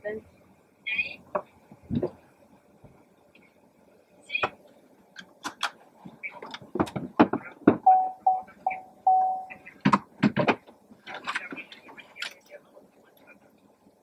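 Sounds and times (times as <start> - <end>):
electronic beeps: 7.9 - 9.7.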